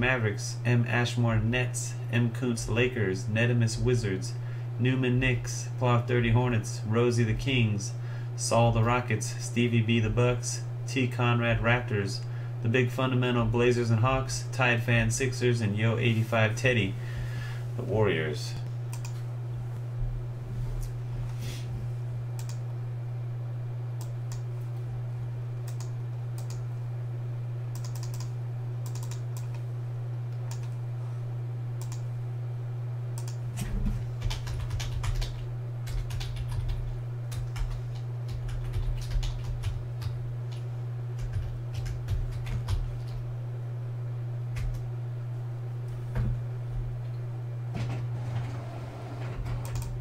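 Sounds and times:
steady low hum: 0.0s - 50.0s
typing on keyboard: 27.8s - 28.3s, 28.9s - 29.5s, 34.2s - 40.2s, 41.2s - 43.2s.

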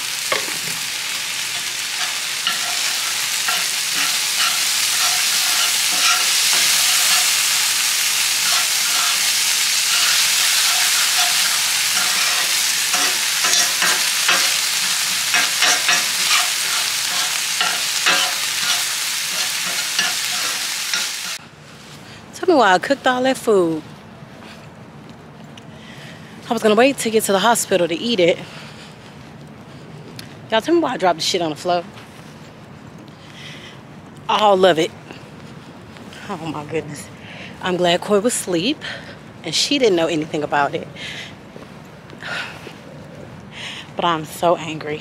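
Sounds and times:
food sizzling in a pan: 0.0s - 21.4s
utensil scraping a pan: 1.5s - 21.4s.

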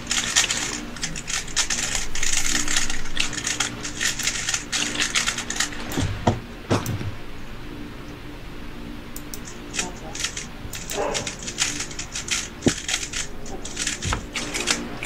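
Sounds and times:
puzzle cubes clicking: 9.4s - 14.8s.

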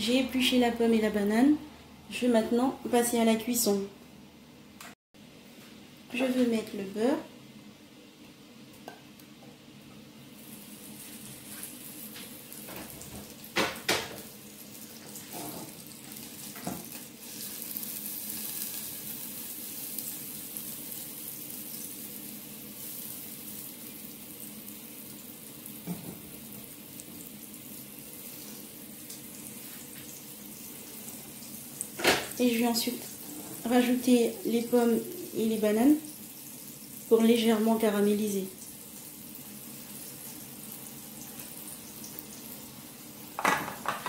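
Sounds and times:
butter sizzling in a saucepan: 10.2s - 44.0s.

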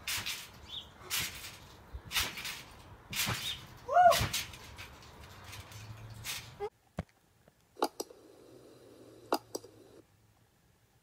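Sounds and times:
trampoline mat thumps: 0.1s - 4.9s.

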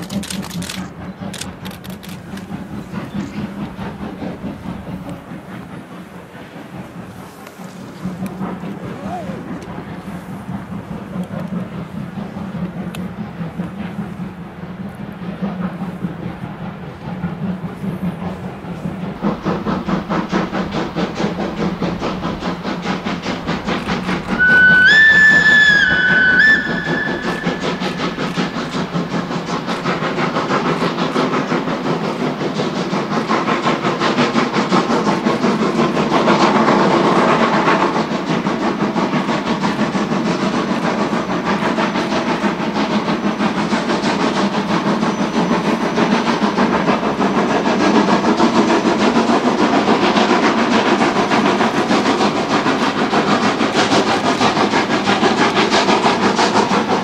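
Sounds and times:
steam locomotive exhaust beats: 0.0s - 57.0s
steam whistle blowing: 24.3s - 27.9s.

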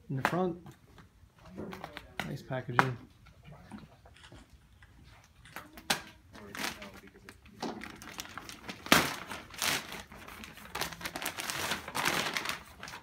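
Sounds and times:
plastic wrapping crinkling: 5.4s - 13.0s.

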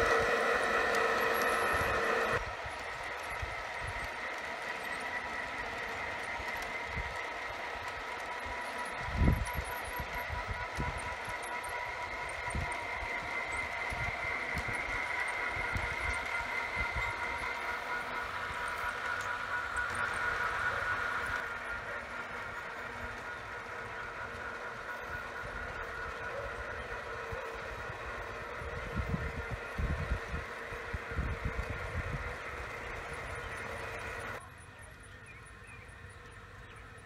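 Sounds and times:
model train motor whine: 0.0s - 37.0s
wind buffeting microphone: 25.4s - 33.6s.

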